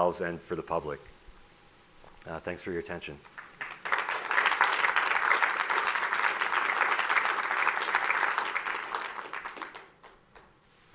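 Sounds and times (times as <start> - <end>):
audience applauding: 3.4 - 10.5.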